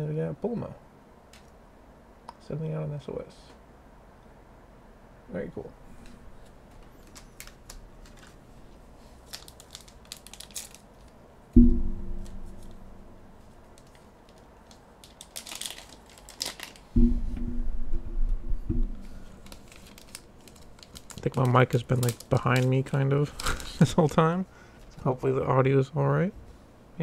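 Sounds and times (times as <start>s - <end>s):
foil wrappers crinkling: 6.7s - 11.2s, 13.7s - 17.0s, 19.0s - 24.2s
microphone handling noise: 17.0s - 19.5s.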